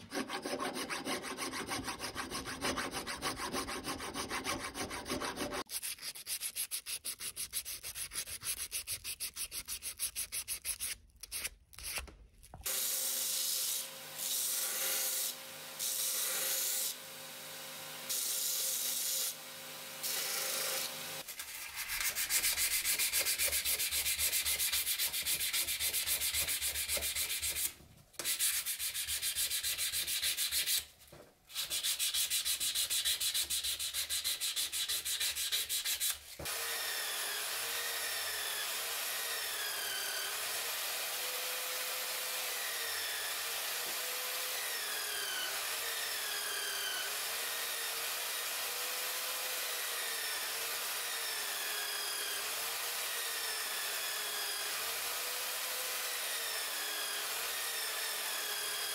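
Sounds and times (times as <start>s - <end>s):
hand file rasping metal: 0.0s - 12.0s, 21.3s - 30.9s, 31.5s - 36.2s.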